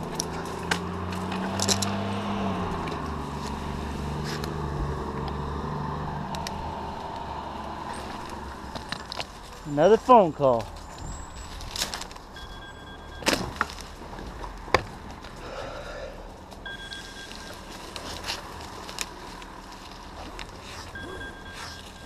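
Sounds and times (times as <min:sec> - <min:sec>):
mobile phone ringing: 0:12.4 - 0:13.3, 0:16.7 - 0:17.6, 0:21.0 - 0:22.0.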